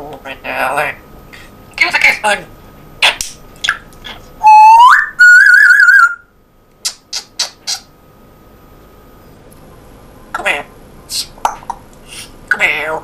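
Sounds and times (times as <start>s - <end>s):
parrot whistling: 4.4s - 6.3s
parrot high clicks: 6.8s - 7.9s.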